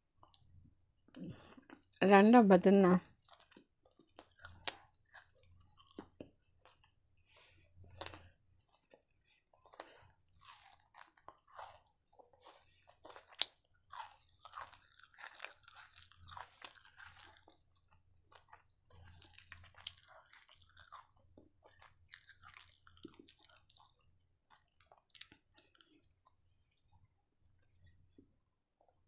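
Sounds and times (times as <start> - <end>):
chewing crunchy food: 0.0 - 2.0, 3.0 - 7.0, 7.7 - 28.2.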